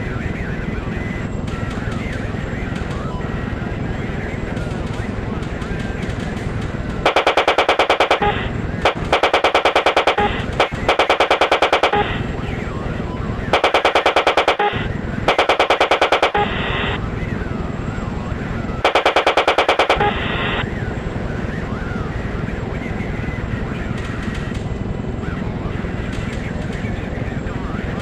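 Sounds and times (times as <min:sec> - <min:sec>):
steady low drone: 0:00.0 - 0:28.0
automatic gunfire bursts: 0:07.0 - 0:12.2, 0:13.5 - 0:16.6, 0:18.8 - 0:20.2.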